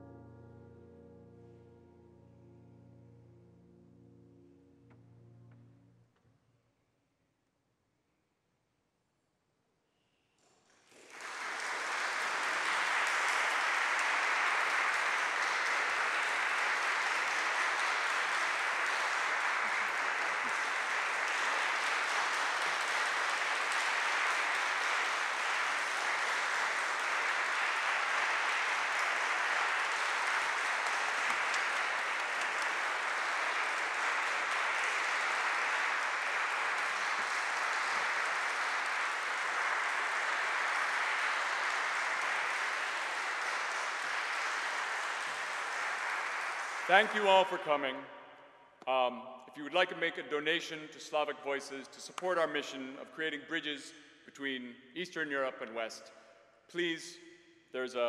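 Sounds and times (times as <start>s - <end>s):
audience applauding: 10.7s - 47.6s.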